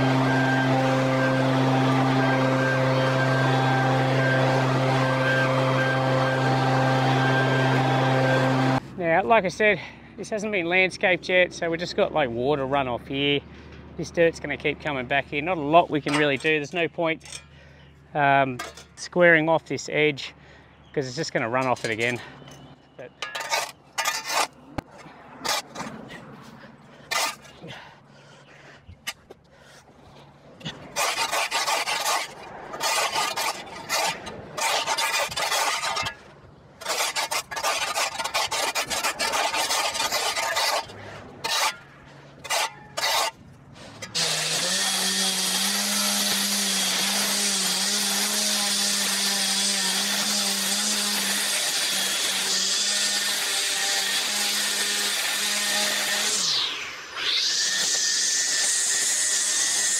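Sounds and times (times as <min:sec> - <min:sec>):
lawn edger running: 0:00.0 - 0:08.8
shovel scraping concrete: 0:16.0 - 0:16.6, 0:21.6 - 0:22.3, 0:23.0 - 0:27.9, 0:30.1 - 0:59.9.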